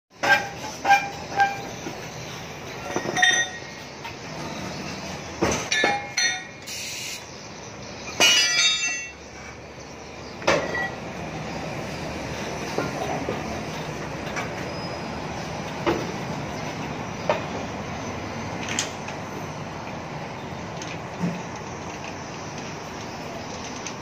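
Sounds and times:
metal wheel clanking against machine: 0:00.2 - 0:06.6, 0:08.1 - 0:09.7, 0:10.4 - 0:11.0, 0:12.6 - 0:13.6
steady background hiss: 0:01.9 - 0:10.6.

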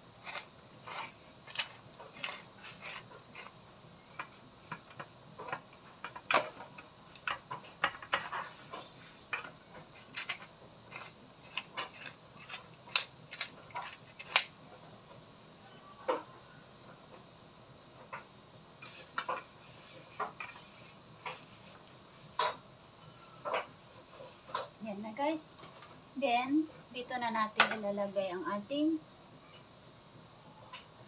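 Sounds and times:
pepper mill grinding: 0:00.2 - 0:03.6, 0:09.8 - 0:14.5.

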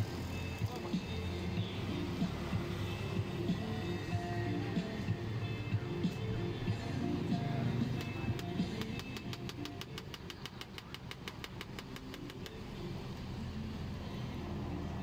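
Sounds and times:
knife tapping steel tabletop: 0:08.3 - 0:12.5.

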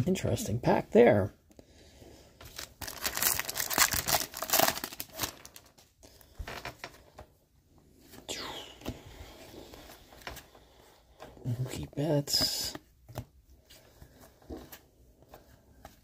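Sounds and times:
foil wrapper tearing and crinkling: 0:02.5 - 0:05.9.

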